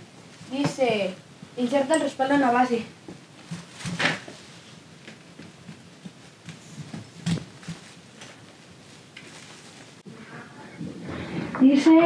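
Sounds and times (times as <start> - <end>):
soft shuffles and light ticks: 3.2 - 10.0.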